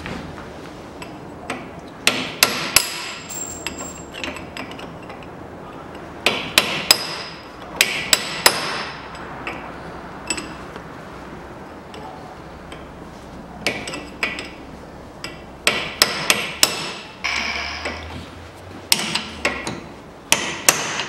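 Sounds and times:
hammer striking chisel on metal: 1.5 - 4.8, 6.2 - 9.7, 15.2 - 18.1, 18.9 - 21.0.

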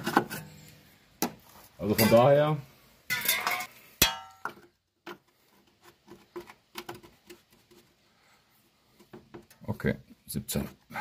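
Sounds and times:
steel hand tools clinking: 3.1 - 4.4
sharp ringing metal clang: 3.2 - 4.4.

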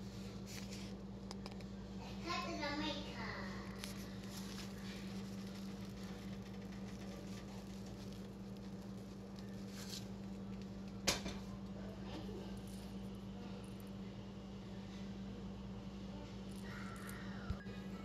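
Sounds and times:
steady low hum: 0.0 - 18.0
faint rustling of seasoning: 3.5 - 14.2.

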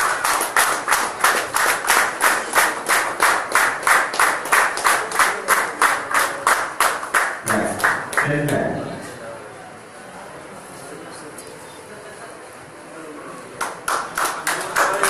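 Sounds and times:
audience clapping in rhythm: 0.0 - 8.7, 13.6 - 15.0.

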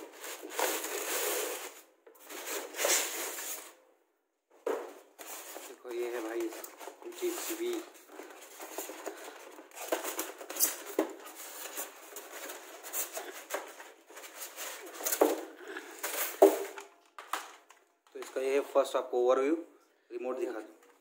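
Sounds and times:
styrofoam scraping and squeaking: 0.0 - 3.8, 5.1 - 15.3.

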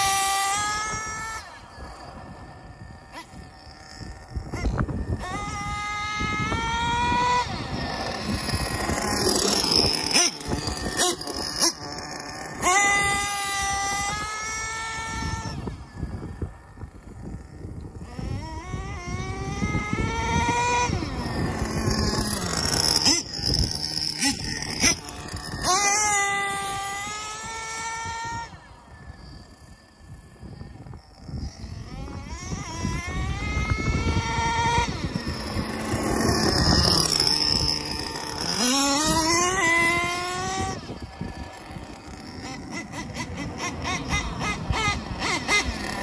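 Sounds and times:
rc truck engine revving: 0.0 - 46.0.

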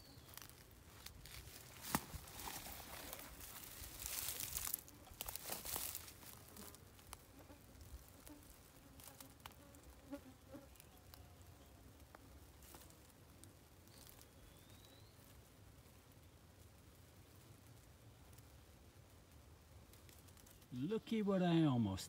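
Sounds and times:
soft rustling: 0.0 - 9.9
faint ticks and clicks: 1.8 - 14.3, 15.3 - 20.8.

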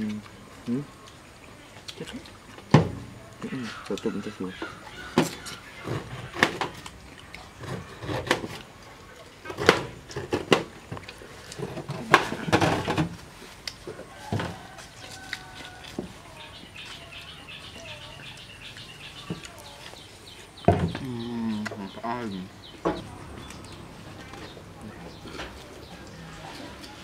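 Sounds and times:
pineapple crunching: 1.8 - 22.0
faint bird chirps: 15.4 - 26.4.

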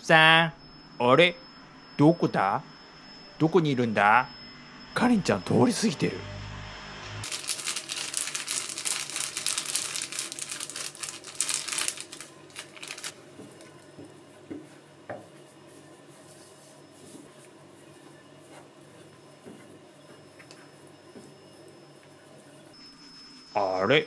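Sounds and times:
crinkling and rustling: 7.2 - 14.1.

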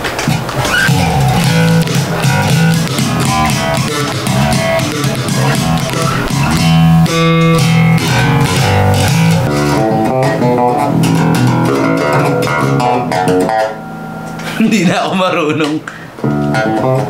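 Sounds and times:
bass guitar plucked notes: 0.5 - 14.4, 16.2 - 17.0.

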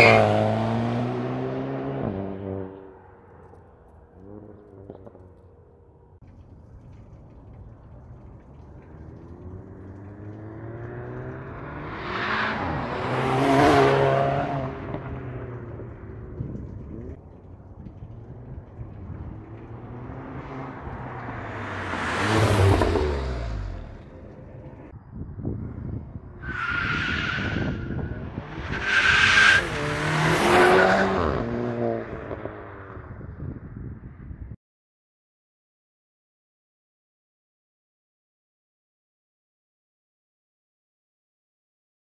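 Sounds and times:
car engine passing: 0.0 - 24.9, 26.7 - 33.1.

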